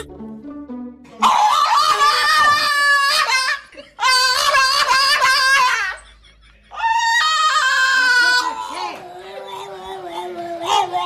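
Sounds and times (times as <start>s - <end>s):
dog howling: 1.2s - 3.4s, 6.8s - 11.0s.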